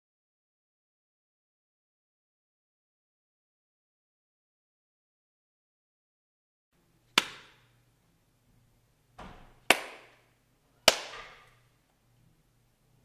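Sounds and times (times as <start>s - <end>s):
sharp cracks: 10.9s - 11.6s.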